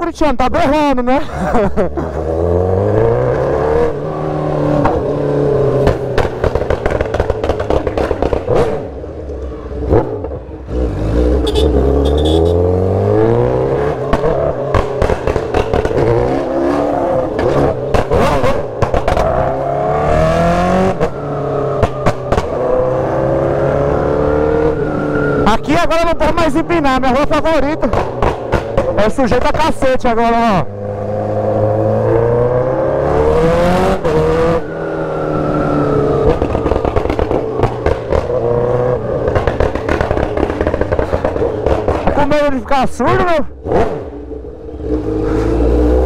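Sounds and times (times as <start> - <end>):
motorcycle revving: 0.0 - 46.0
exhaust pops and crackles: 5.8 - 10.4, 14.0 - 16.3, 17.3 - 19.5, 21.8 - 22.6, 25.5 - 30.6, 36.2 - 44.1.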